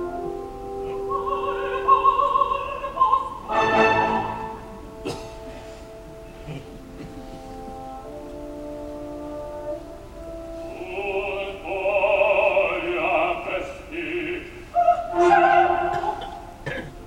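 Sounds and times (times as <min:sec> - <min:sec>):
baritone singing with vibrato: 0:00.0 - 0:04.7, 0:10.2 - 0:16.6
mezzo-soprano singing: 0:00.0 - 0:05.0, 0:06.8 - 0:17.0
orchestra holding notes: 0:00.0 - 0:17.0.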